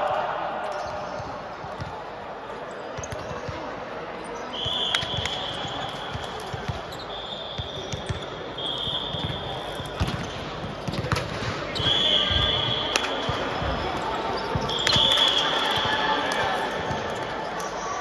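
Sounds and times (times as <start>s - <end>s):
voices in a hall: 0.0s - 18.0s
shoe squeals on court: 4.2s - 11.1s, 11.7s - 18.0s.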